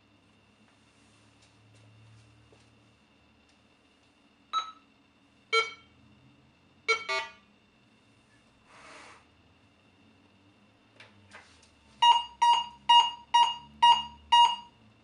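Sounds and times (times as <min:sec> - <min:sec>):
soft rustle: 0:00.6 - 0:02.7
metal detector beeps: 0:04.6 - 0:04.8, 0:05.6 - 0:05.9, 0:06.9 - 0:07.4, 0:12.0 - 0:14.7.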